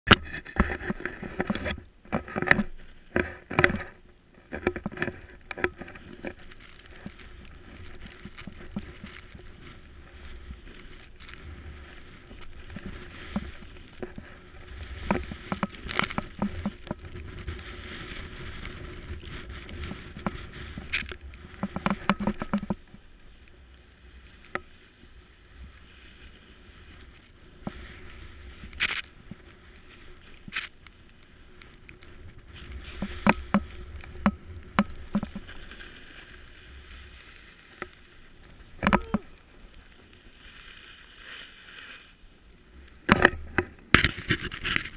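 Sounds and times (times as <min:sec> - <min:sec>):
snowboard hissing through snow: 0:17.4 - 0:20.8, 0:35.5 - 0:38.8, 0:39.6 - 0:42.3.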